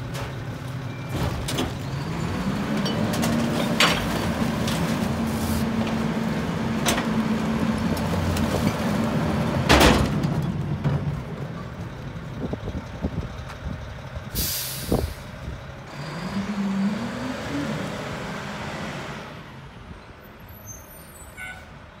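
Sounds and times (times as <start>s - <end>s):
diesel engine revving: 1.6s - 19.9s
air brakes hissing: 14.3s - 15.4s.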